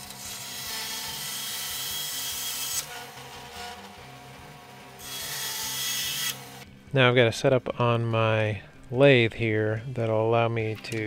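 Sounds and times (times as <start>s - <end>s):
bandsaw cutting antler: 0.0s - 6.6s
bandsaw humming: 0.0s - 6.7s.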